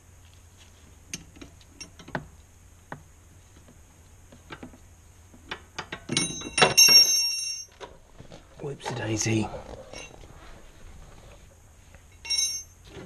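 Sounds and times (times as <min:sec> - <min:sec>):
ringing metallic clinks: 0:06.0 - 0:07.8, 0:09.9 - 0:10.2, 0:12.1 - 0:12.8.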